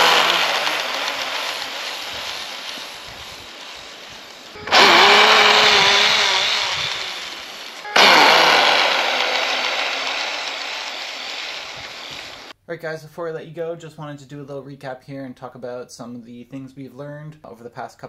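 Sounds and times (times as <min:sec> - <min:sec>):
electric motor whining: 0:00.0 - 0:12.5.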